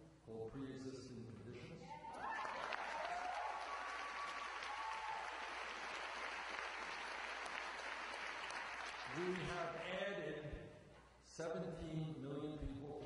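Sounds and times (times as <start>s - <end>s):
crowd cheering: 1.8s - 9.8s
crowd applauding: 2.0s - 9.9s.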